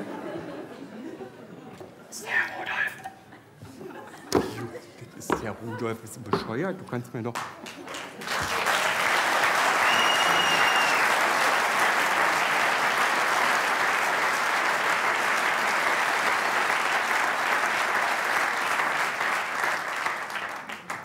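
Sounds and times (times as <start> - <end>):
audience applauding: 7.4 - 21.0.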